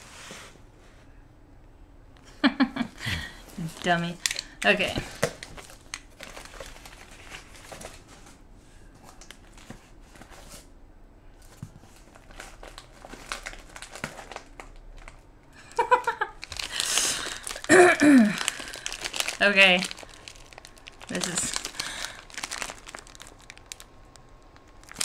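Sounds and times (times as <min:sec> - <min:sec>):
packaging crinkling and tearing: 0:03.6 - 0:08.2, 0:11.4 - 0:15.3, 0:16.0 - 0:25.0.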